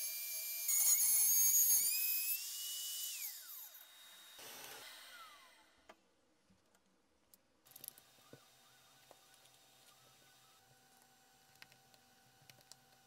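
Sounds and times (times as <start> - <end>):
router whining cutting wood: 0.0 - 5.8, 8.0 - 10.7.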